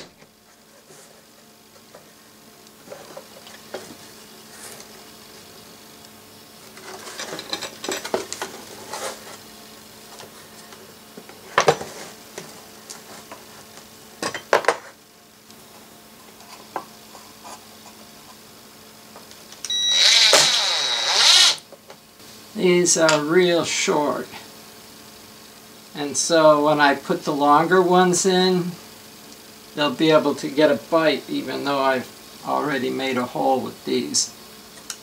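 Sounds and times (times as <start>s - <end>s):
cordless drill driving screw: 19.8s - 21.6s.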